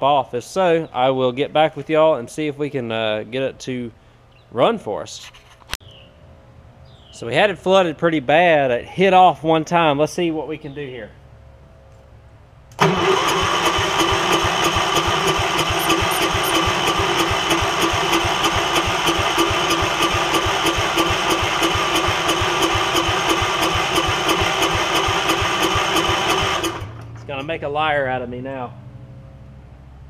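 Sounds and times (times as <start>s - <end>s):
electric starter cranking engine: 12.7s - 27.3s.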